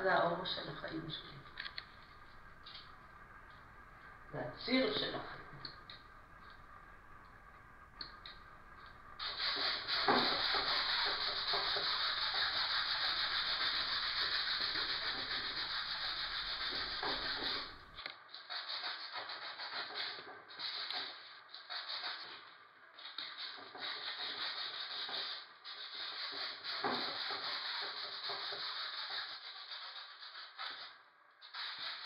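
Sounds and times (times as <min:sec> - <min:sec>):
rubbing on painting surface: 0:08.0 - 0:22.4, 0:23.2 - 0:30.9, 0:31.5 - 0:32.0.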